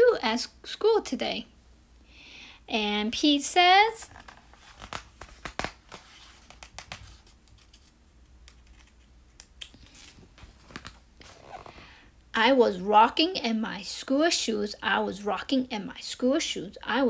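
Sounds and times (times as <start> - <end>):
book pages rustling: 4.0 - 11.8.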